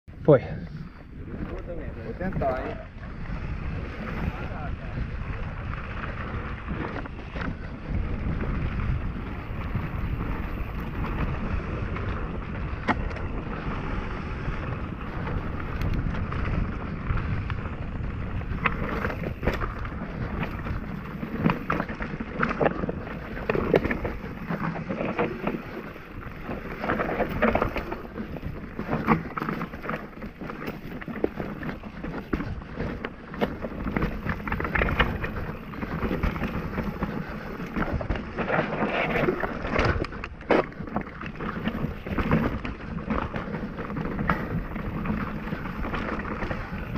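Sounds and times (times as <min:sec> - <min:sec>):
bike tyres rolling on dirt: 0:00.1 - 0:46.9
wind rushing over microphone: 0:00.1 - 0:46.9
bike rattling over rocks: 0:00.3 - 0:46.9.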